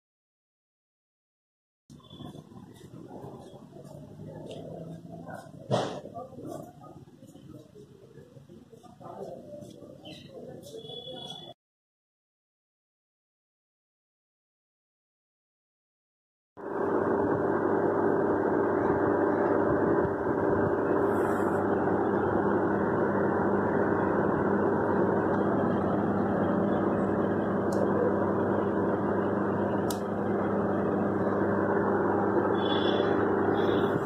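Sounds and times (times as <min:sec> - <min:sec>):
steady hum and rushing noise: 0:16.6 - 0:34.0.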